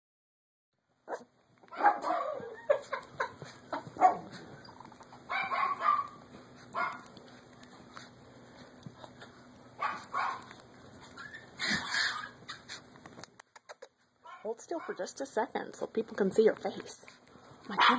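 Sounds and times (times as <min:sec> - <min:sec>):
puppy yipping and barking: 0:01.1 - 0:07.1, 0:09.8 - 0:12.8.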